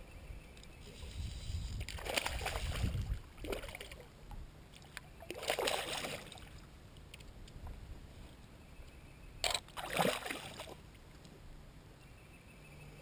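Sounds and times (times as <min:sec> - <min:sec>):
water splashing and sloshing: 0:01.7 - 0:07.8, 0:09.4 - 0:11.0.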